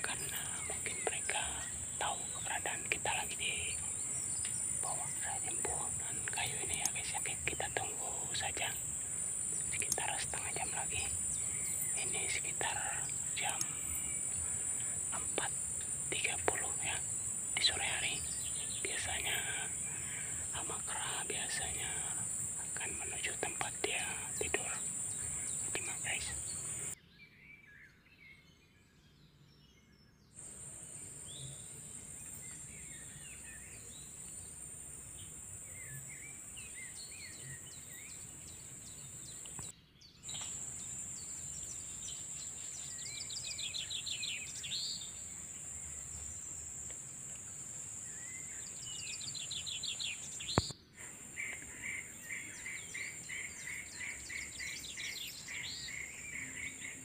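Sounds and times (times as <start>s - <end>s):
high-pitched insect drone: 0.0s - 27.0s
bird chirps and calls: 0.0s - 28.0s, 35.7s - 45.3s, 48.1s - 57.0s
sharp click: 50.5s - 50.8s.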